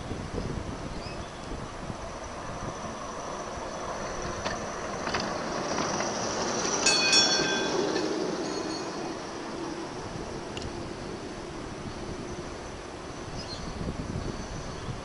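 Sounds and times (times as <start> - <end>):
model tram passing: 0.0 - 15.0
wheels clicking on track: 1.3 - 13.4
high ringing whine: 6.6 - 15.0.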